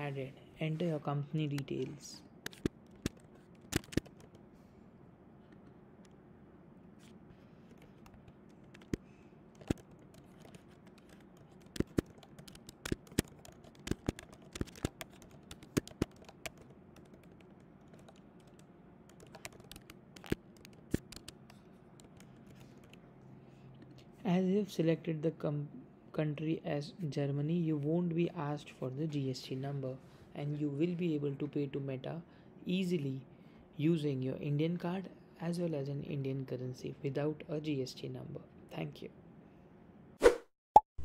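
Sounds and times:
faint steady hum: 0.0 - 40.2
computer keyboard typing: 2.5 - 4.4, 7.7 - 23.0.

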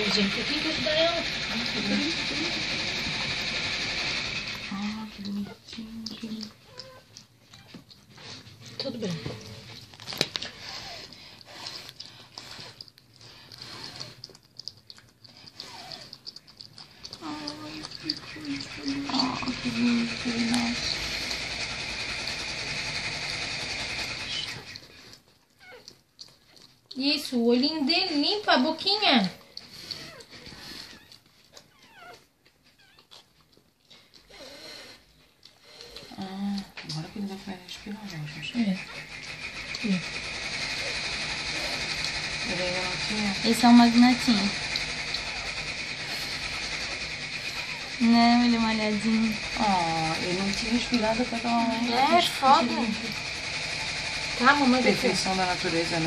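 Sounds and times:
dog licking and chewing puppy: 0.0 - 56.0
puppy whimper: 5.2 - 21.0, 24.2 - 26.8, 29.6 - 36.3
puppy squeaking cries: 31.0 - 33.1.

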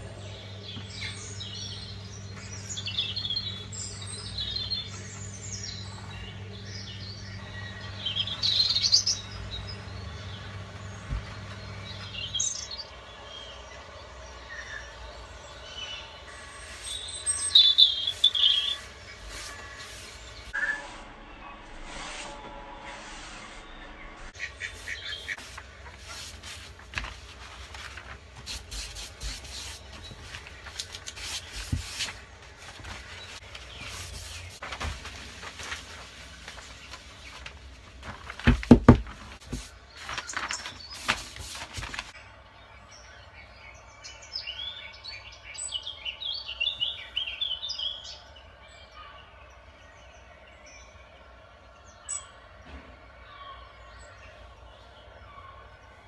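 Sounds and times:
birds chirping: 0.0 - 21.4, 23.9 - 56.0
paper rustling and crackling: 24.6 - 42.2
loud knocks: 38.3 - 39.4.

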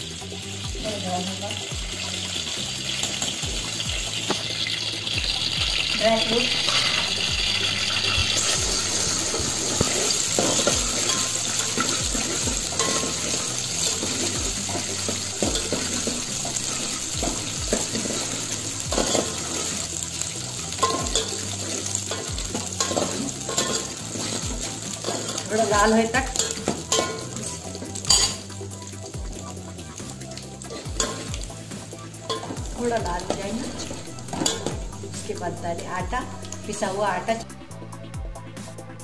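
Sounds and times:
nuts sizzling in a pot: 0.0 - 37.6
spoon scraping and knocking pot: 8.0 - 19.8, 26.3 - 28.4.

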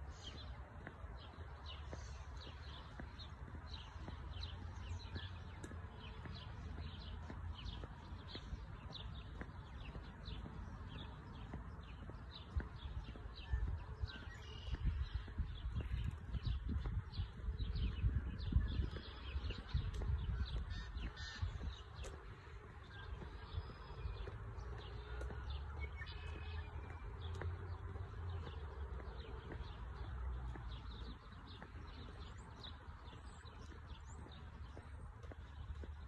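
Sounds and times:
birds chirping and calling: 0.0 - 36.0
wind rumbling on microphone: 11.5 - 24.6.

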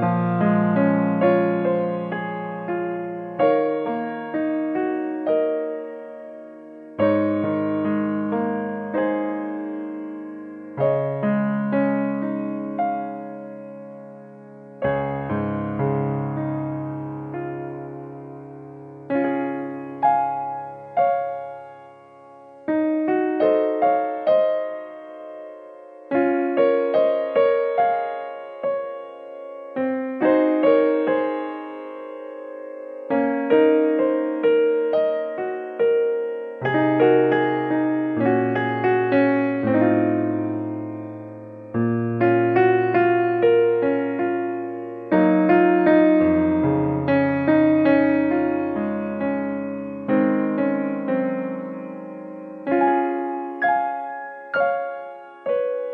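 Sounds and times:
slow piano music: 0.0 - 55.9.

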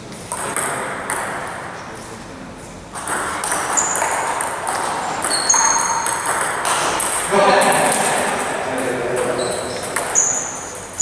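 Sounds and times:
table tennis ball ticking: 3.0 - 7.3, 9.2 - 11.0
short high squeaks: 5.2 - 6.1, 9.3 - 11.0.

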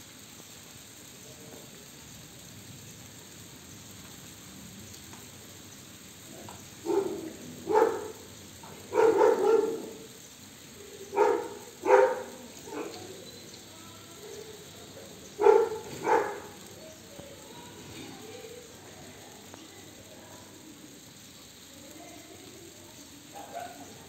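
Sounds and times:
dog barking: 6.3 - 10.1, 11.1 - 13.1, 15.4 - 16.6, 23.3 - 24.0.

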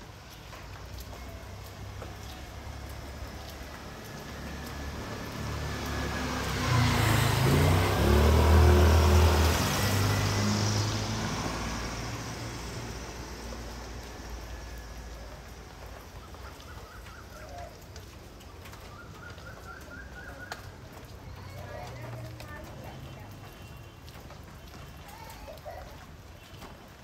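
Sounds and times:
vehicle passing by: 1.0 - 16.0.

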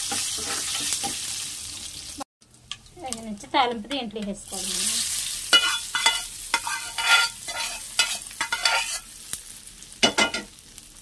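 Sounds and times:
steel spoon scraping a pan: 0.0 - 1.2, 4.8 - 9.2
hot oil hissing: 0.0 - 2.2, 4.4 - 11.0.

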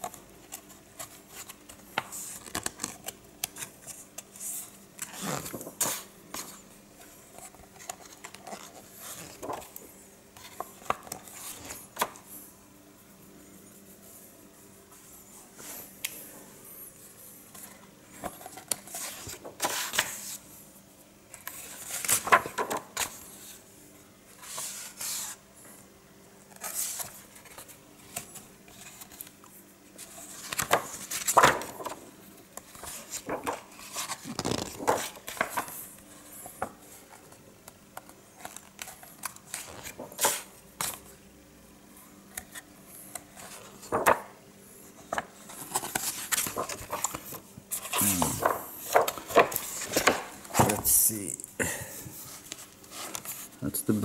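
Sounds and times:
book pages turning: 0.0 - 12.4, 17.5 - 20.4, 21.3 - 23.6, 24.3 - 25.4, 26.4 - 41.2, 42.3 - 51.3, 52.2 - 53.6.

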